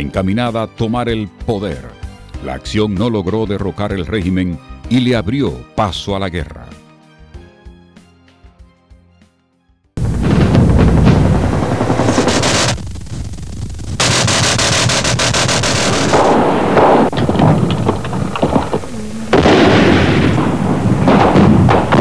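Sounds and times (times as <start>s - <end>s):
automatic rifle fire: 11.0s - 12.8s, 14.0s - 18.7s, 19.3s - 22.0s.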